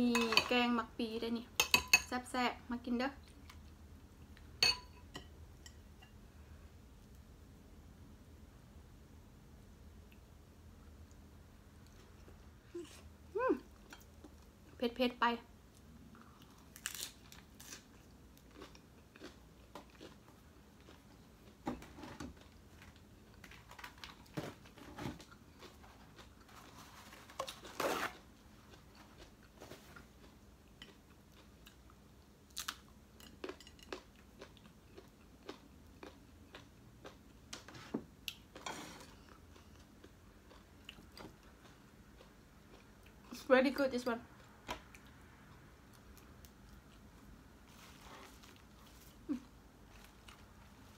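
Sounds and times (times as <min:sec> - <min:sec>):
chewing and biting: 0:16.2 - 0:21.6.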